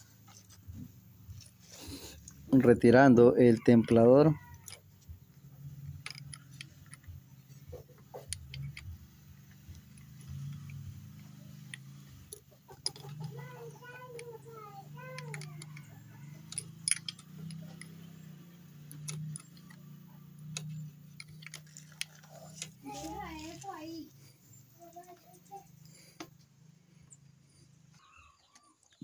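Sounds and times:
metal tool clicks and clinks: 3.9s - 4.9s, 5.7s - 13.4s, 14.0s - 22.8s.

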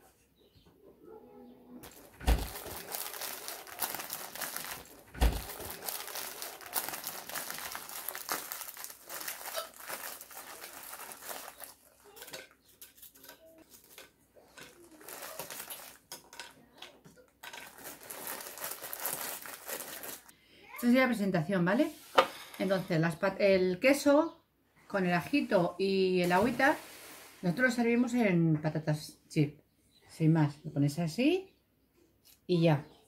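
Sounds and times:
plastic wrapper crinkling: 1.8s - 16.5s, 17.4s - 20.3s.

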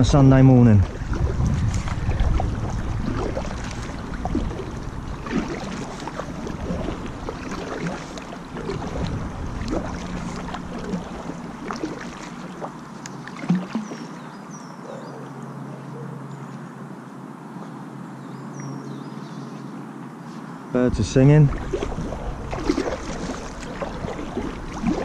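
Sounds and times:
wind rumble on microphone: 0.0s - 12.6s, 20.8s - 25.0s
paddle splashing in water: 0.8s - 14.4s, 21.4s - 25.0s
small birds chirping faintly: 10.0s - 21.6s.

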